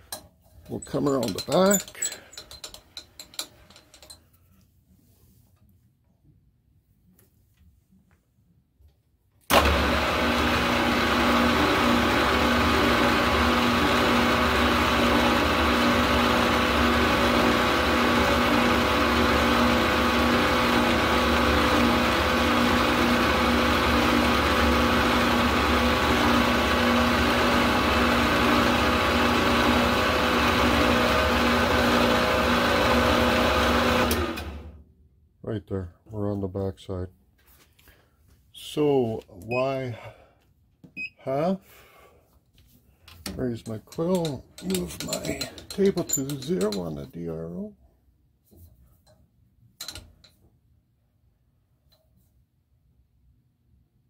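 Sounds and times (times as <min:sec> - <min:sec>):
milling machine motor humming: 0:09.5 - 0:34.7.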